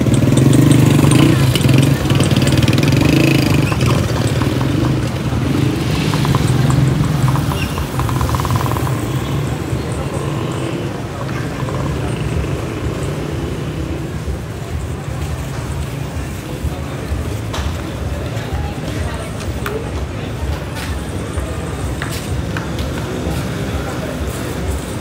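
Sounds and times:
indistinct voices: 0:00.0 - 0:25.0
motorcycle engine running: 0:00.0 - 0:25.0.

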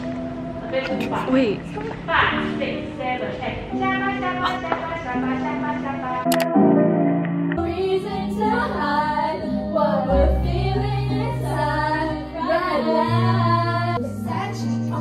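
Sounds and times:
women singing into microphone: 0:07.6 - 0:15.0.

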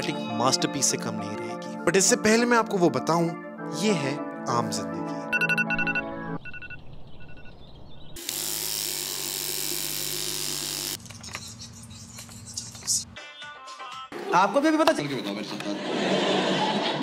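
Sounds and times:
electronic beeping: 0:05.3 - 0:07.6
electric toothbrush buzzing: 0:08.2 - 0:11.0.

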